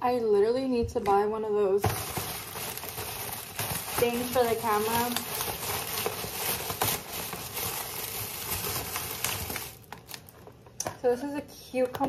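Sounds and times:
plastic bag rustling: 0:01.8 - 0:10.8.

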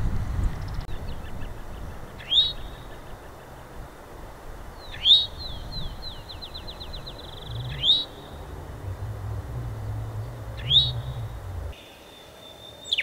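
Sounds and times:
bird short rising calls: 0:04.7 - 0:12.1
bird fast trill: 0:04.8 - 0:11.9.

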